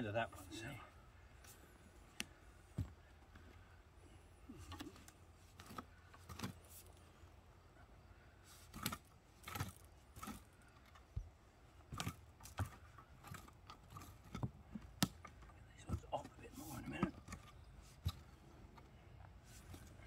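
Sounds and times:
rake scraping through soil: 0:08.5 - 0:10.6.

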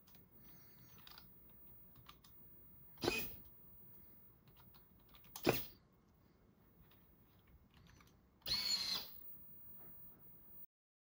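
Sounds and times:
servo motor whirring: 0:08.5 - 0:09.2.

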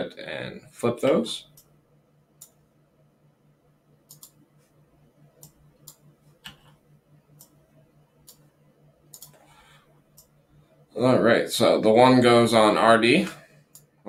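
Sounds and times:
faint low hum: 0:00.0 - 0:14.0
computer mouse clicks: 0:04.1 - 0:04.4, 0:05.4 - 0:07.6, 0:08.2 - 0:08.5, 0:09.1 - 0:09.5, 0:10.1 - 0:10.4.

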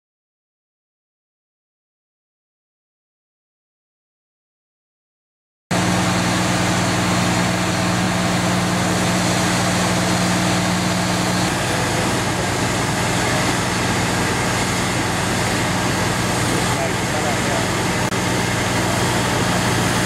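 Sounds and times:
diesel engine idling: 0:05.7 - 0:20.0.

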